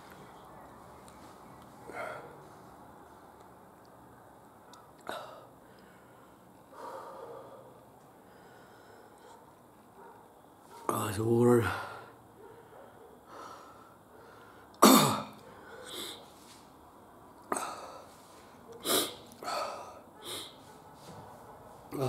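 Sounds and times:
man exhaling sharply and sniffing: 17.6s - 20.7s.

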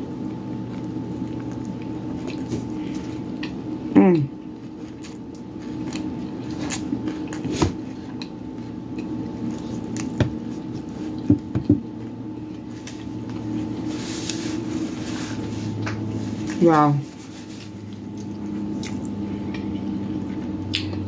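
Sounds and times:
steady low hum: 0.0s - 21.0s
person chewing food: 0.2s - 21.0s
paper napkin rustling: 12.7s - 18.2s.

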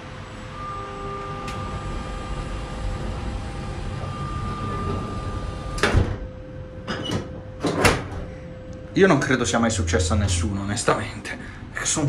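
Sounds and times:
train running noise: 0.0s - 6.2s, 9.0s - 12.0s
sliding door motor whine: 0.0s - 8.6s.

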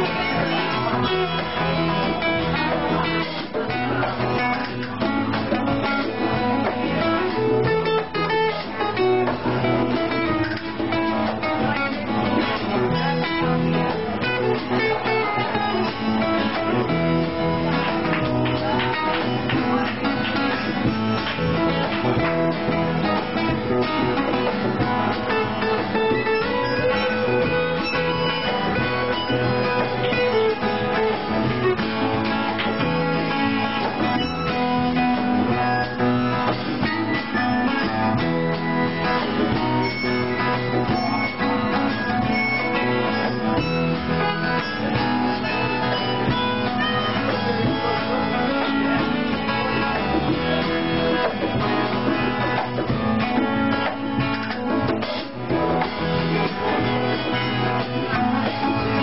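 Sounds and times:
live band playing: 0.0s - 59.0s
strummed acoustic guitar: 0.0s - 59.0s.

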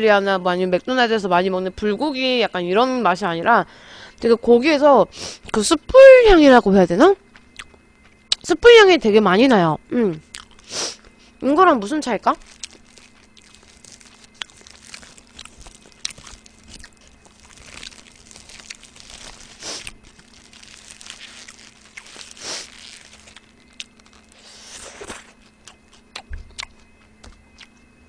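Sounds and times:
faint low hum: 0.0s - 28.0s
biting and chewing: 10.2s - 11.1s, 12.4s - 27.9s
foil wrapper crinkling: 12.3s - 26.1s.

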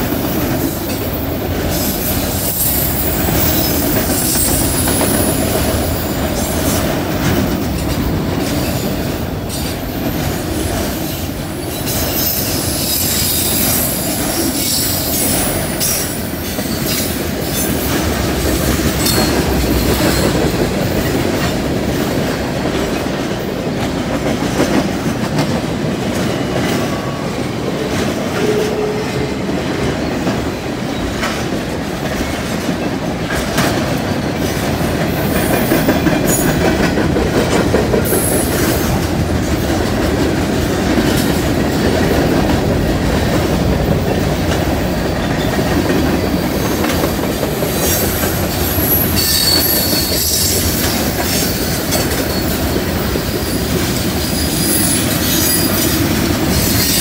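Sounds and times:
train wheels rumbling on rail: 0.0s - 57.0s
wheel squeal: 48.7s - 53.1s, 54.2s - 56.0s.

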